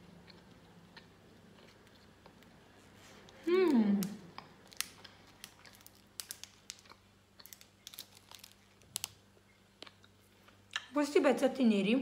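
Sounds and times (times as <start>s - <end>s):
foil wrapper crinkling: 4.6s - 9.2s.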